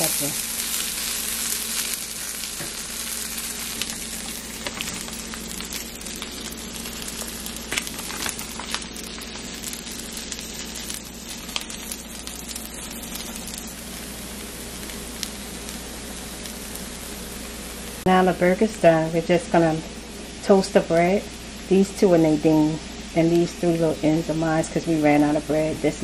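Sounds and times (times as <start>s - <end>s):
patties sizzling in a frying pan: 0.0s - 26.0s
crackling pops: 3.7s - 13.7s.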